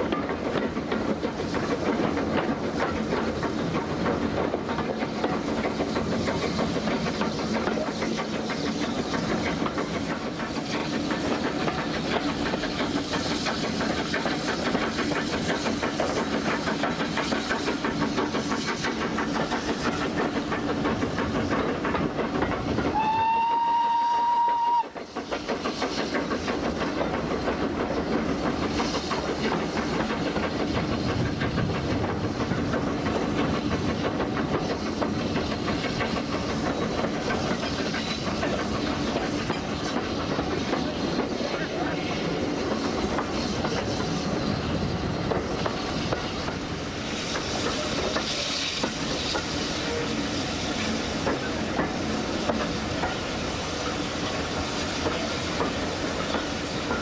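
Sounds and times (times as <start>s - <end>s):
train wheels clattering on rails: 0.0s - 57.0s
steam whistle: 22.9s - 25.0s.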